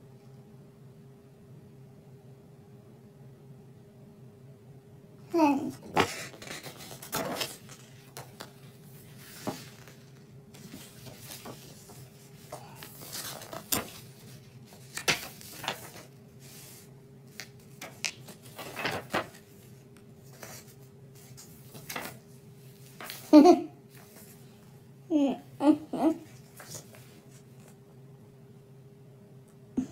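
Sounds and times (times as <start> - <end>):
faint steady hum: 0.0 - 29.9
paper pages turning: 5.4 - 23.4, 26.3 - 27.8.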